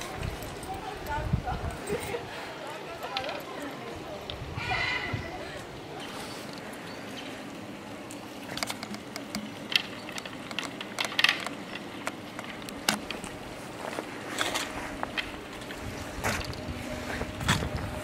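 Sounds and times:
steady low hum: 4.3 - 18.0
sharp clicks and knocks: 8.1 - 13.4.

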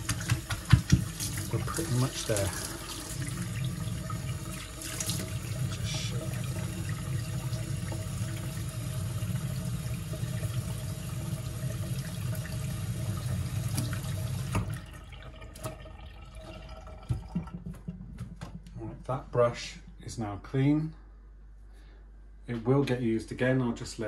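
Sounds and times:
tap running into steel sink: 0.0 - 1.4.

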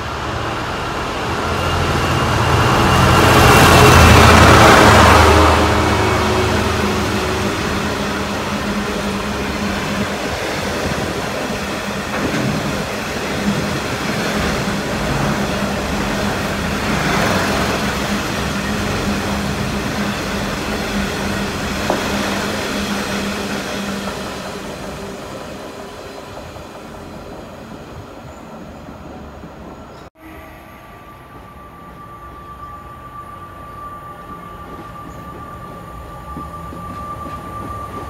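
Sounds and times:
wagon wheels rumbling on rail: 0.0 - 27.8.

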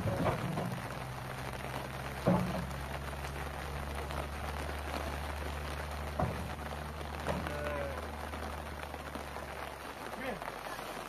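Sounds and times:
thump: 0.0 - 0.8, 2.2 - 2.7, 6.2 - 6.5
rain hiss: 0.0 - 11.0.

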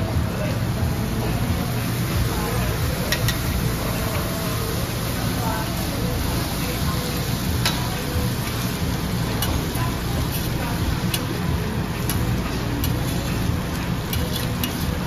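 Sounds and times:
food sizzling on griddle: 0.0 - 15.0
metal spatulas scraping plate: 14.1 - 15.0.

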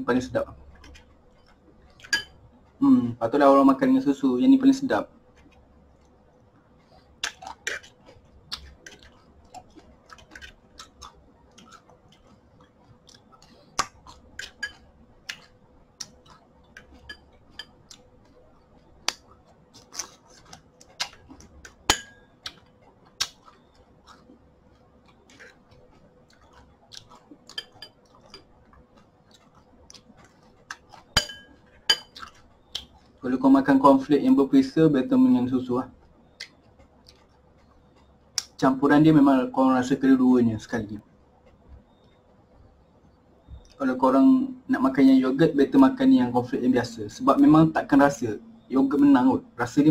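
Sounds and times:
chewing: 0.5 - 2.8, 5.0 - 33.3, 35.4 - 39.2
spoon clinking on ceramic bowl: 2.0 - 2.4, 14.6 - 14.9, 17.0 - 17.8, 21.9 - 22.3, 31.2 - 32.2.

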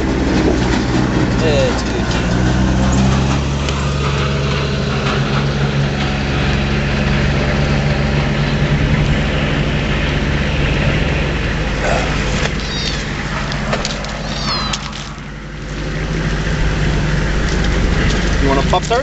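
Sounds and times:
vehicle engine idling: 0.0 - 19.0
kitten mewing: 11.8 - 15.3.

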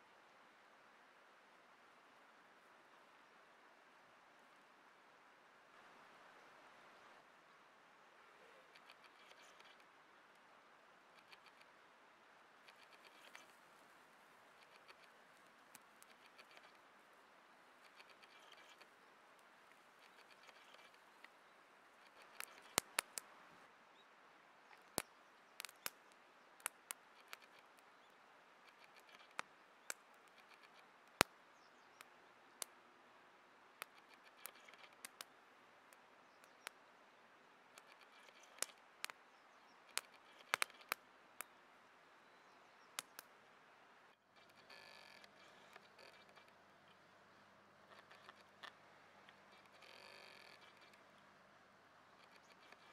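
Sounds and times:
faint steady hiss: 0.0 - 52.9
campfire pops and crackles: 14.6 - 16.8, 22.0 - 23.3, 24.7 - 27.8, 28.7 - 31.4, 33.8 - 35.3, 37.7 - 39.2, 39.9 - 41.5, 42.9 - 43.3.

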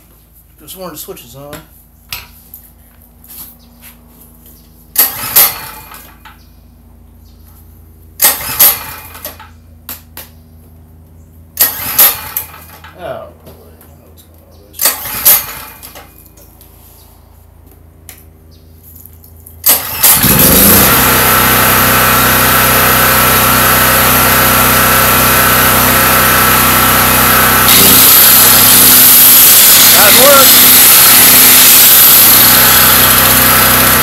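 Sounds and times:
generator humming: 0.0 - 34.0
angle grinder whining: 19.6 - 34.0.

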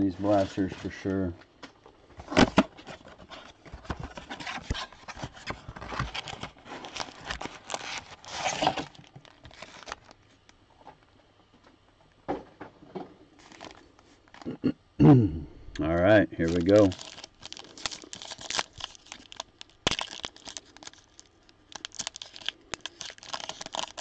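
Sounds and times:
packaging crinkling and tearing: 2.2 - 10.2, 13.4 - 14.5, 16.4 - 24.0.

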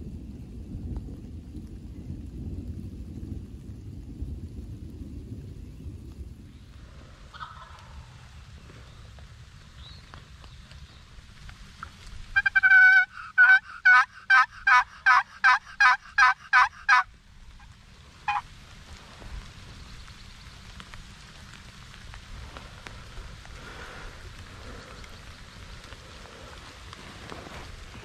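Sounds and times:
turkey yelping: 12.4 - 17.1.

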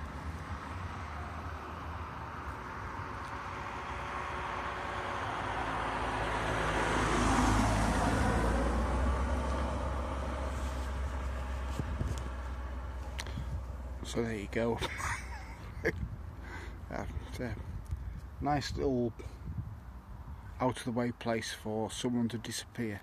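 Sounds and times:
cars driving past: 0.0 - 17.5.

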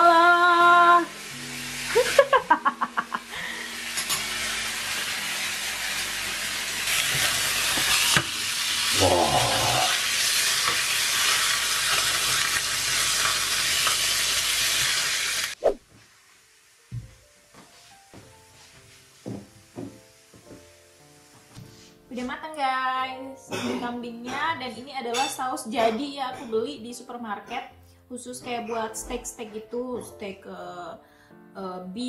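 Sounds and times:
meat sizzling in a pan: 0.2 - 22.0.

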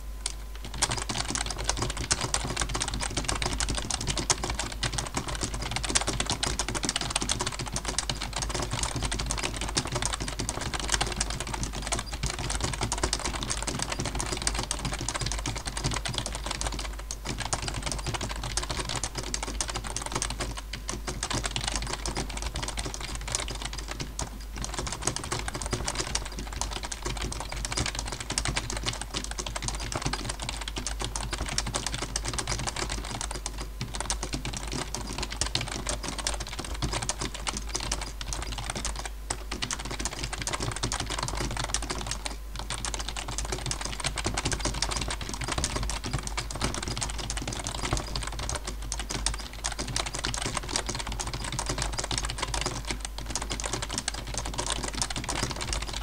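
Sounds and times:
fast keyboard typing: 0.2 - 56.0.

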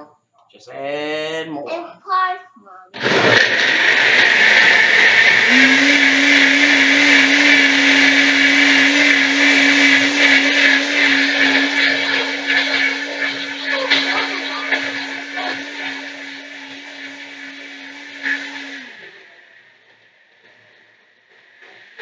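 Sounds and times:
blender running: 3.0 - 20.0.

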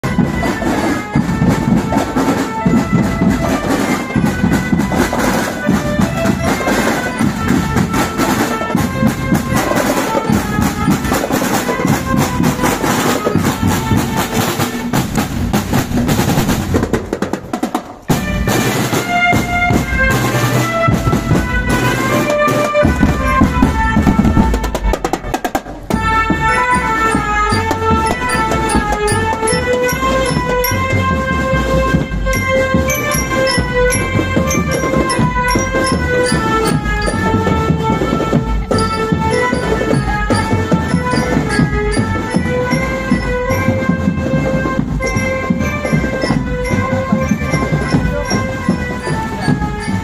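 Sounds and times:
marching drums beating: 0.0 - 50.0
bell lyras ringing melody: 25.8 - 50.0.

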